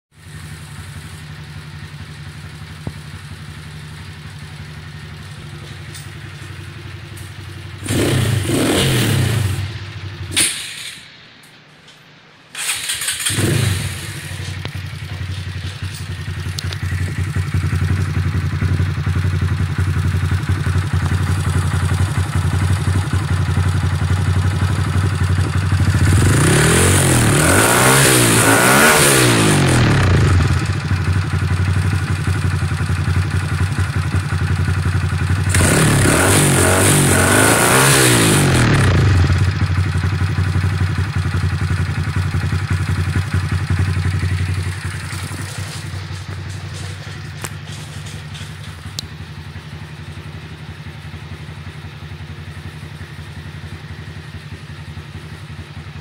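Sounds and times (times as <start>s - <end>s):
motorcycle engine idling and revving: 0.0s - 11.4s, 12.5s - 56.0s.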